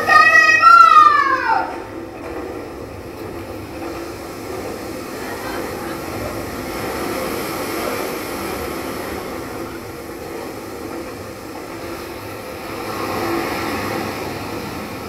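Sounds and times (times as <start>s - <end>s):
steady rumbling noise: 0.0s - 15.0s.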